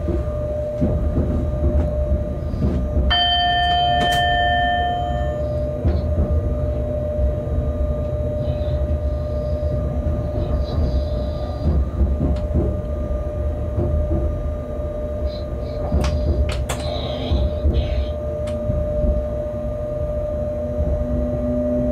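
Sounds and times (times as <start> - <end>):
low rumble of locomotive running: 0.0 - 21.9
steady high tone: 3.0 - 12.4, 14.6 - 21.9.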